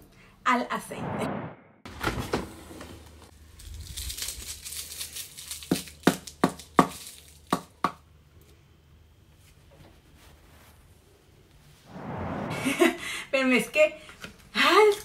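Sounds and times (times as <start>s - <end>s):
cling film crinkling: 3.3s - 7.5s.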